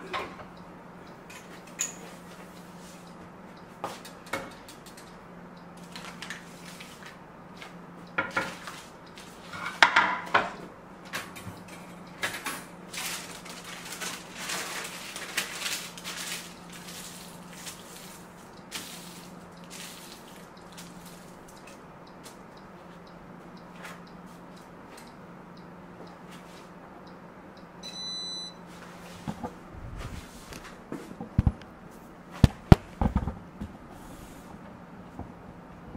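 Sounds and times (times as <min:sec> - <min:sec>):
steady low hum: 0:00.0 - 0:35.9
wrapper rustling: 0:12.9 - 0:18.1.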